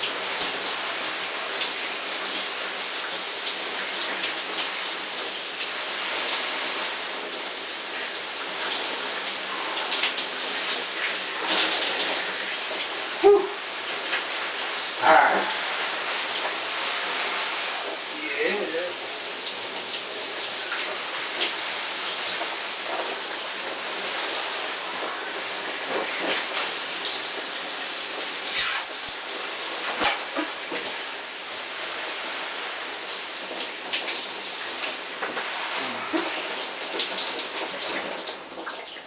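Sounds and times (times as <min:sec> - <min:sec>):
shower spray running: 0:00.0 - 0:39.0
sharp knocks or splashes: 0:29.9 - 0:30.8.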